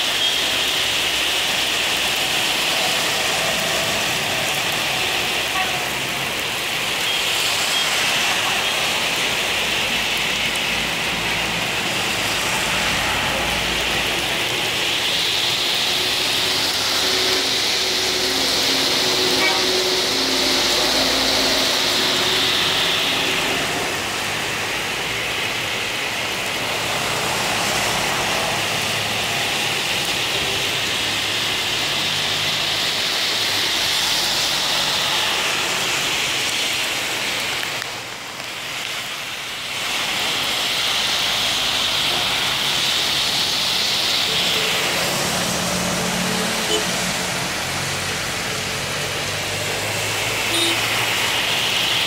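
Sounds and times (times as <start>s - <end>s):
heavy rain: 0.0s - 52.0s
tyres hissing on wet road: 0.0s - 52.0s
minibus engine hum: 8.1s - 36.4s, 39.2s - 52.0s.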